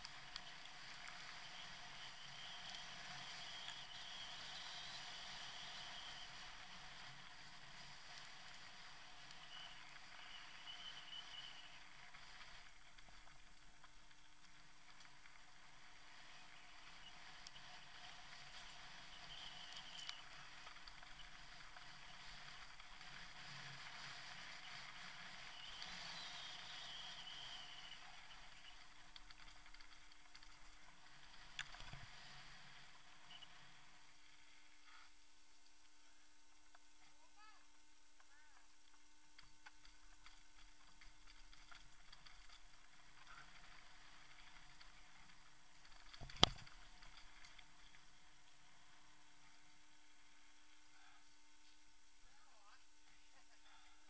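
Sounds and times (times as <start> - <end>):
bike tyres rolling on dirt trail: 0.0 - 54.0.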